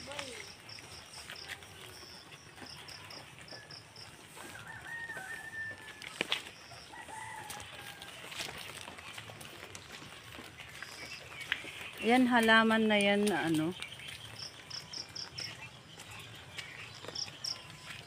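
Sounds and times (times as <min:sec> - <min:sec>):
rooster crowing: 0:03.7 - 0:08.5.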